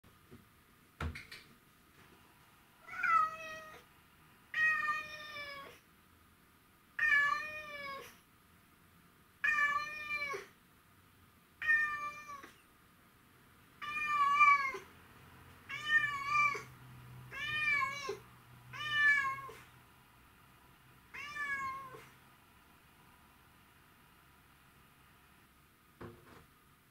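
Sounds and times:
cat meowing: 2.8s - 3.9s, 4.5s - 5.8s, 7.0s - 8.2s, 9.4s - 10.5s, 11.6s - 12.6s, 13.8s - 14.9s, 15.7s - 16.7s, 17.3s - 19.7s, 21.1s - 22.2s.

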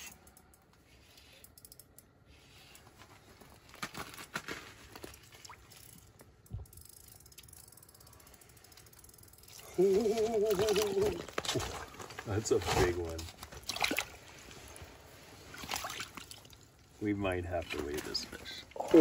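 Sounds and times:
fishing reel clicking: 6.7s - 9.7s.

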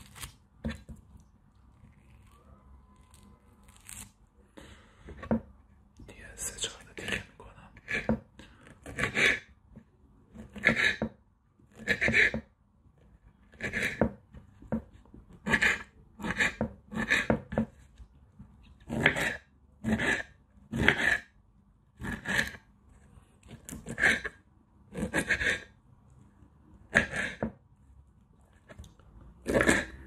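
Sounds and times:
knife slicing fruit: 0.0s - 1.1s, 11.7s - 12.5s.

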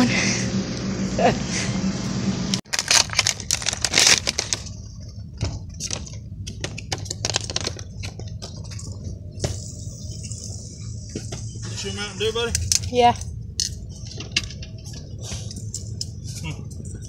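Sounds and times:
car hum: 0.0s - 17.0s
plastic packaging crinkling: 2.7s - 4.8s, 7.0s - 8.2s.

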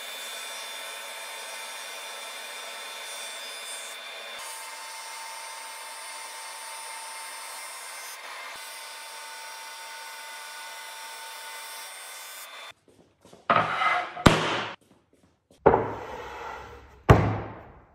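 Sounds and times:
wooden board scraping on board: 13.5s - 14.8s, 15.7s - 17.2s.

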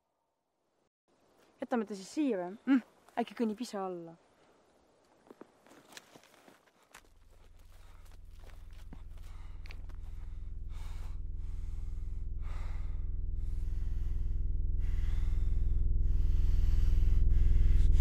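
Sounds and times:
heavy breathing: 6.7s - 18.0s
low sustained drone: 7.8s - 18.0s.

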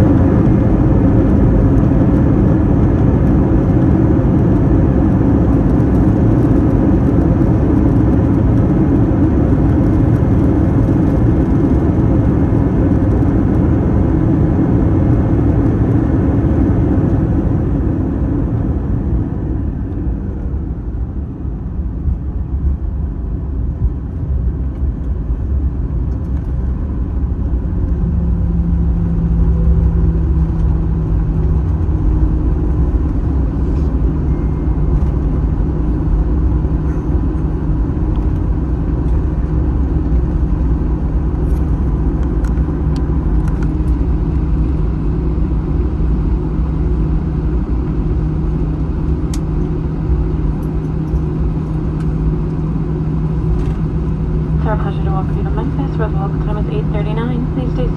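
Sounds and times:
jet engine and rolling rumble: 0.0s - 57.9s
low rumble: 0.0s - 57.9s
faint low hum: 54.4s - 57.9s.

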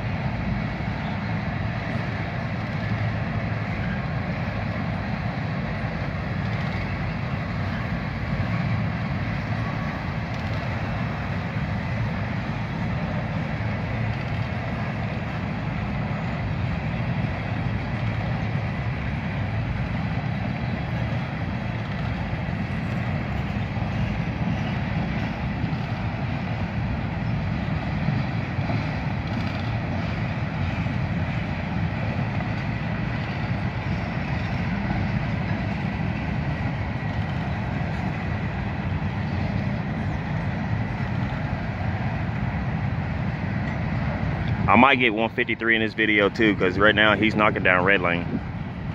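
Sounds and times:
train wheels rumbling on rails: 0.0s - 48.9s.

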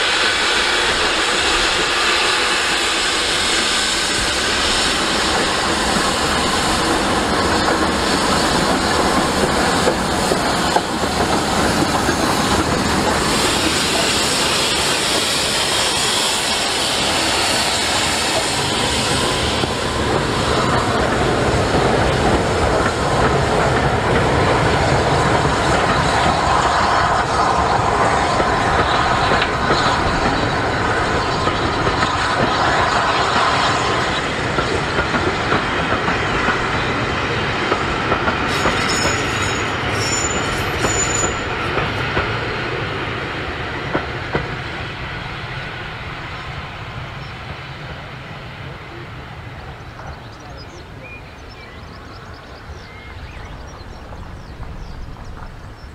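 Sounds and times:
steam train passing: 0.0s - 55.9s
wheels clacking over rail joints: 5.1s - 15.9s, 17.0s - 44.8s.

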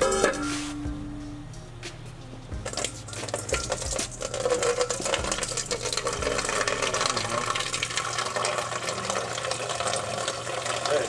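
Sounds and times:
liquid splashing into a metal bowl: 2.7s - 11.0s.

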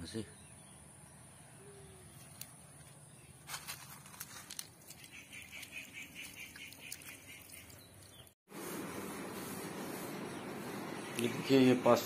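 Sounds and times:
water splashing into puddle: 4.8s - 8.1s.

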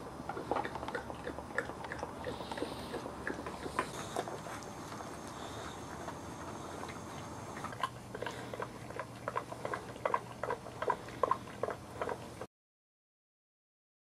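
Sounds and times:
puppies whimpering: 2.3s - 8.6s.

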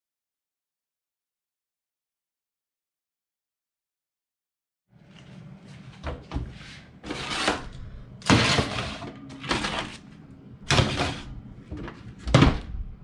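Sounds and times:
steady low hum: 4.9s - 13.0s
metal pans clattering on oven racks: 7.1s - 10.0s, 10.7s - 12.6s.

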